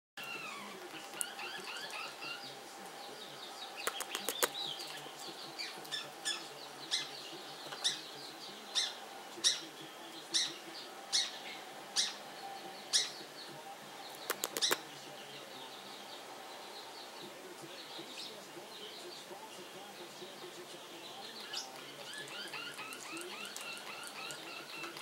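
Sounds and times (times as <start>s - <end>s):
parrots chirping: 0.2s - 2.5s, 3.3s - 13.4s, 14.0s - 14.9s, 21.2s - 25.0s
parrot rattling chatter: 3.8s - 4.6s, 14.2s - 14.8s, 22.1s - 25.0s.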